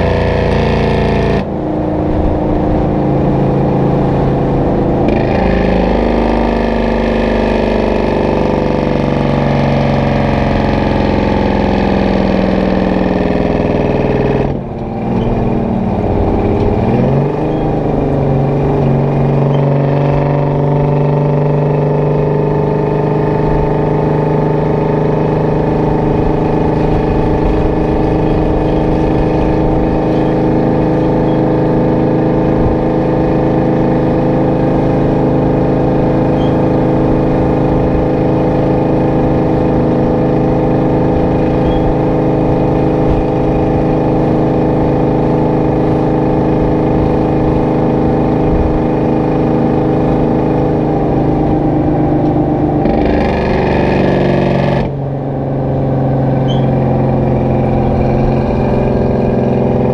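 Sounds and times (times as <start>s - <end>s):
truck diesel engine under load: 0.0s - 59.9s.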